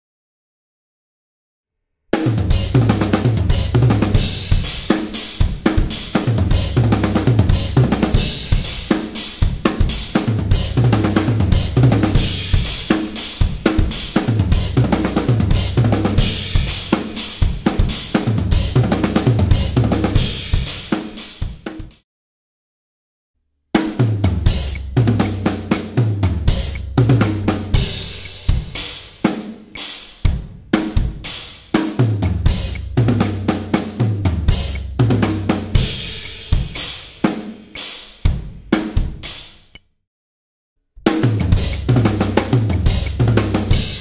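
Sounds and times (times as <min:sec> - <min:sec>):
drum kit playing: 0:02.2 - 0:22.0, 0:23.8 - 0:39.8, 0:41.0 - 0:44.0
cymbals ringing: 0:35.8 - 0:37.2.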